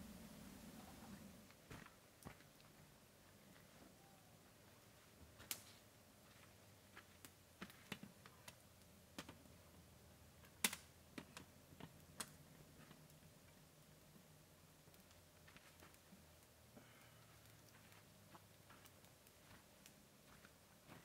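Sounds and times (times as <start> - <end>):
wood fire clicks and snaps: 5.4 - 5.8, 7.1 - 21.0.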